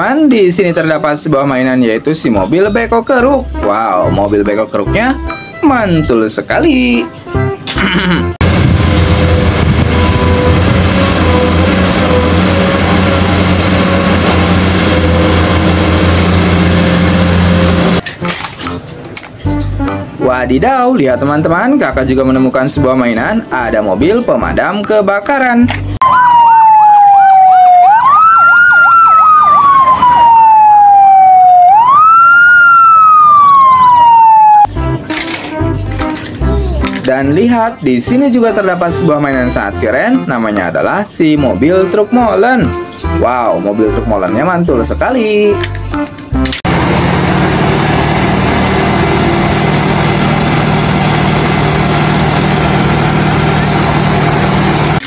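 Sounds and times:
diesel truck engine running: 8.4s - 18.0s, 46.6s - 55.0s
siren wailing: 8.4s - 18.0s, 26.0s - 34.8s
siren yelping: 8.9s - 13.8s, 26.0s - 34.8s.

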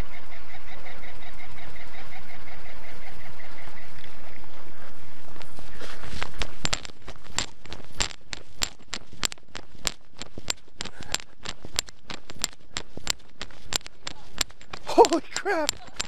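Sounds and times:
running footsteps on gravel: 3.6s - 16.0s.

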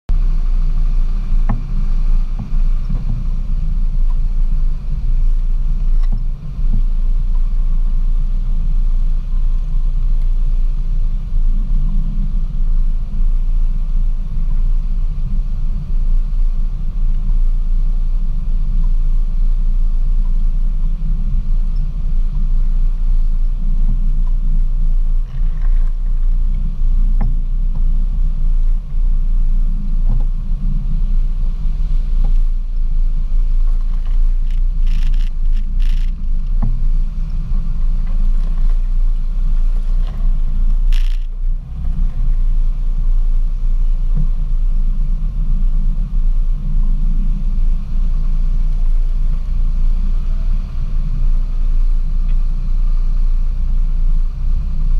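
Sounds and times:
low engine rumble: 0.0s - 54.9s.

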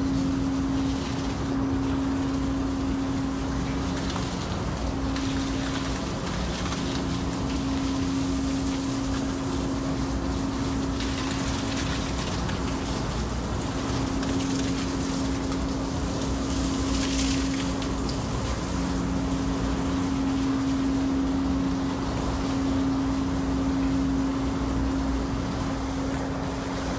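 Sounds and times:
constant machine tone: 0.0s - 26.9s
ship machinery hum: 0.0s - 26.9s.

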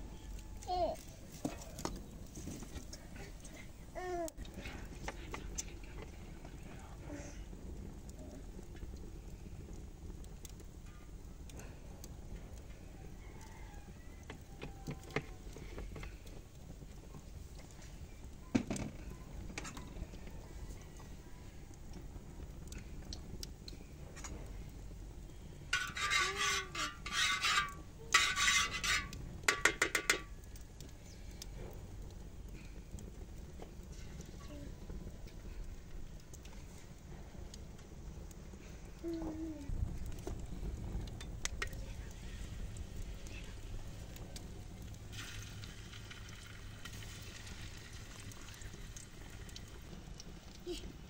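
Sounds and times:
hot oil sizzling: 0.0s - 51.0s
wood fire crackling: 0.0s - 51.0s
metal spoon scraping frying pan: 25.7s - 30.4s
low rumble: 30.9s - 45.6s.

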